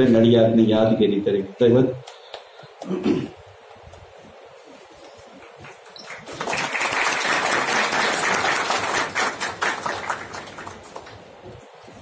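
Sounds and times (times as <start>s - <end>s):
audience applauding: 5.3s - 11.4s.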